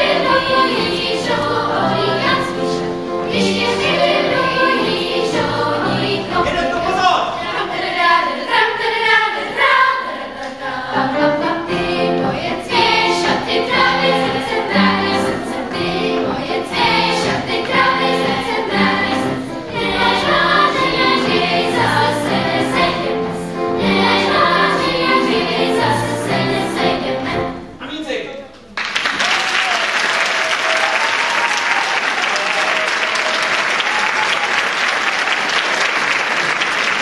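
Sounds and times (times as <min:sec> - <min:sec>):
children's choir singing: 0:00.0 - 0:27.8.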